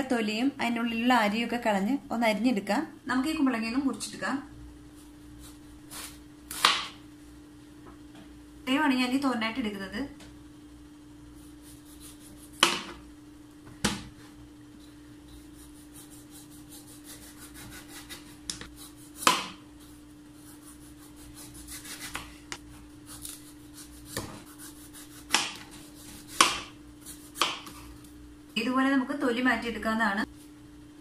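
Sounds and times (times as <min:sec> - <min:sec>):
steady low hum: 0:00.0 - 0:31.0
knife scraping gourd rind: 0:14.8 - 0:22.3, 0:23.1 - 0:27.8.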